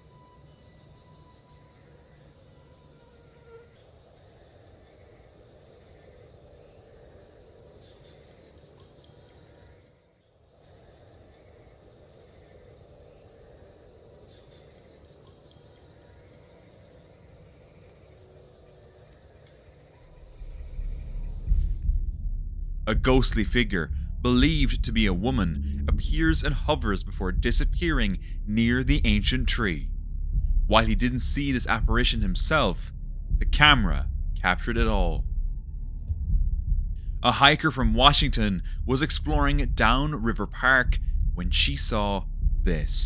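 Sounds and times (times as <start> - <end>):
insects trilling: 0.0 - 21.8
low rumble: 20.2 - 43.0.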